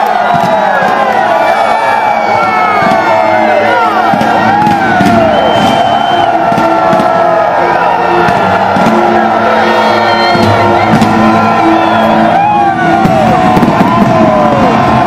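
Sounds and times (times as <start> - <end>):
crowd cheering and whooping: 0.0 - 15.0
loud music with held notes: 0.0 - 15.0.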